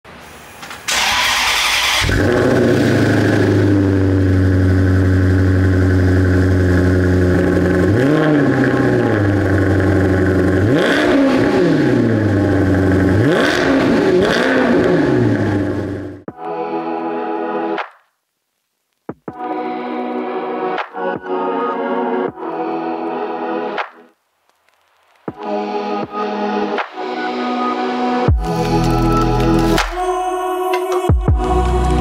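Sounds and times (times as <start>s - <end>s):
car engine starting and idling: 0.4s - 16.3s
engine revving: 0.9s - 16.3s.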